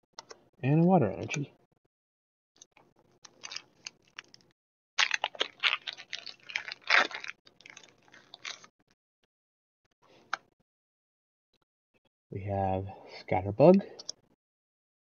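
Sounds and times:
foil wrapper crinkling and tearing: 3.2s - 8.7s.

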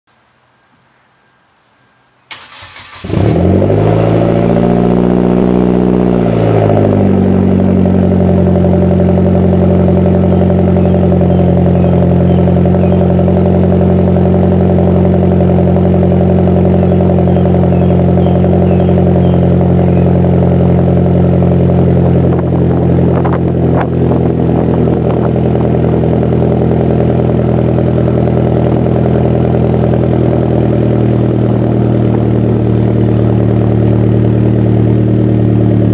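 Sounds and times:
car engine idling after cold start: 2.3s - 3.3s.

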